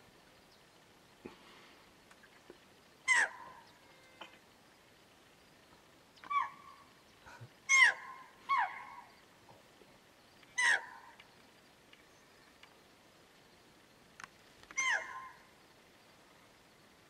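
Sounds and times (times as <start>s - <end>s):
deer barking: 3.1s - 4.4s, 6.2s - 6.9s, 7.7s - 9.1s, 10.6s - 11.2s, 14.8s - 15.5s.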